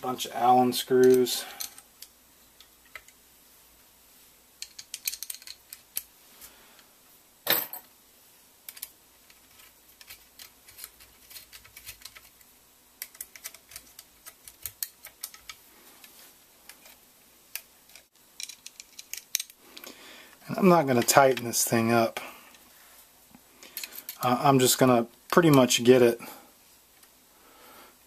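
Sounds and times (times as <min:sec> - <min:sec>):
small metal parts clicking and clinking: 0:01.0 - 0:02.1, 0:04.6 - 0:06.1, 0:08.7 - 0:12.4, 0:13.0 - 0:15.6, 0:16.7 - 0:19.6, 0:23.6 - 0:24.2
allen key turning a screw: 0:04.6 - 0:06.1, 0:08.7 - 0:12.4, 0:13.0 - 0:15.6, 0:16.7 - 0:19.6.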